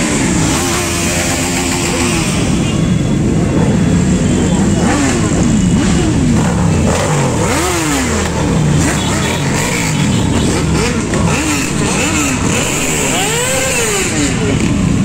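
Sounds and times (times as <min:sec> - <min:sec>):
motorcycle engines revving: 0:00.0 - 0:15.0
motorcycles riding by: 0:00.0 - 0:15.0.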